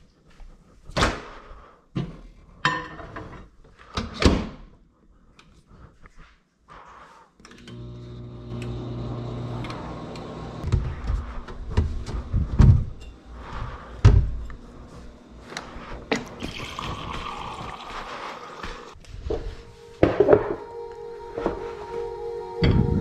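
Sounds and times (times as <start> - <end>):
microwave oven humming: 7.6 - 13.1
water running into glass: 16.1 - 18.9.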